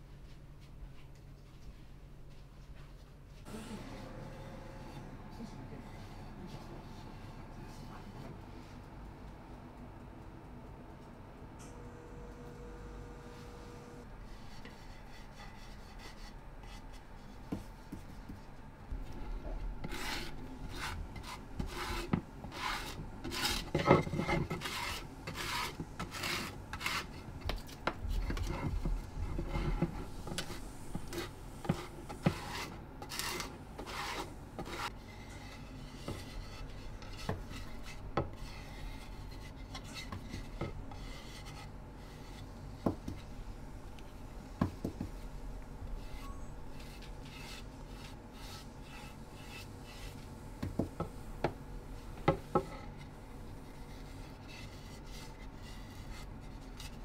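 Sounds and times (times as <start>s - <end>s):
wooden spatula scraping plate: 19.1s - 43.4s, 44.6s - 57.0s.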